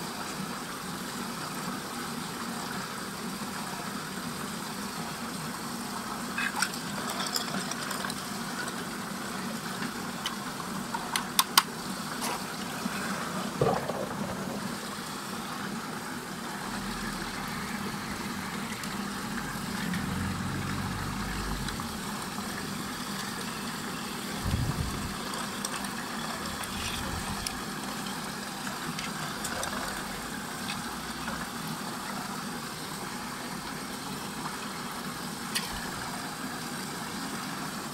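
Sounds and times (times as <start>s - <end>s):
water rushing in whirlpool: 0.0s - 37.9s
low hum: 16.5s - 25.2s.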